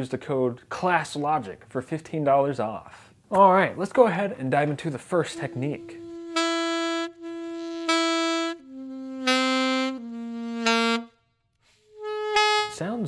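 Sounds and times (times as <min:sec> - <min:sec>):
alto saxophone long notes: 0:05.3 - 0:13.0.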